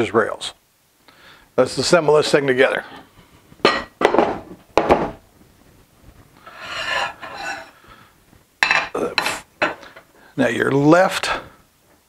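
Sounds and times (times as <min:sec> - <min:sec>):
metal rail scraping slide: 0:06.5 - 0:07.8.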